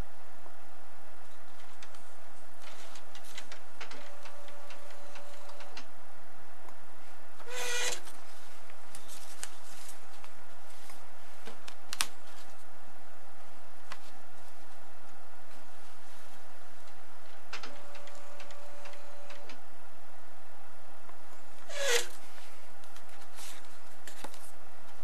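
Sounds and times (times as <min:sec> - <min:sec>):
high squeak: 0:07.4 - 0:08.0, 0:21.7 - 0:22.1.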